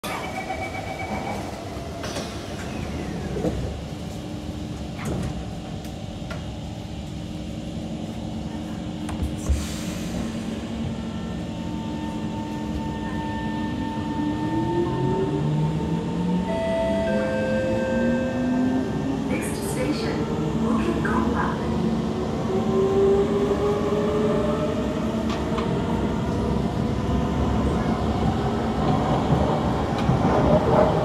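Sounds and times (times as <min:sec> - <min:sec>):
two-tone door chime: 0:16.4 - 0:18.7.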